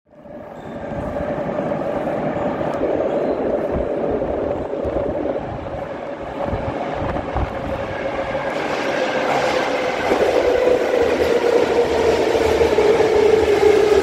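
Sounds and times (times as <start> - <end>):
metro train rumbling in tunnel: 0.1 - 14.0.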